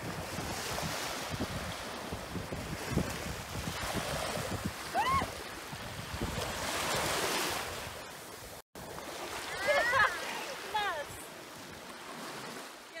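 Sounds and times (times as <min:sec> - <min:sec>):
wind buffeting microphone: 0:00.0 - 0:08.6
waves on pebbly shore: 0:00.0 - 0:13.0.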